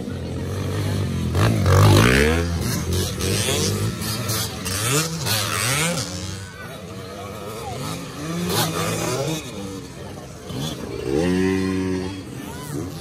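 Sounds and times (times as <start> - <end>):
dirt bikes revving past: 0.0 - 13.0.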